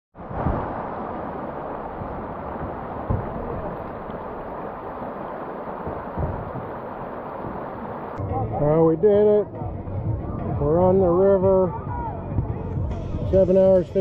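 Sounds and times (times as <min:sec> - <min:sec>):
river water rushing over rocks: 0:00.2 - 0:08.3
low thumps: 0:00.2 - 0:13.8.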